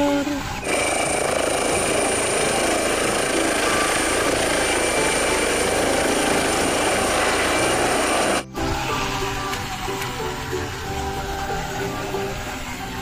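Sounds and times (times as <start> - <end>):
helicopter turbine whine: 0.0 - 8.5
rotor rush: 0.6 - 8.5.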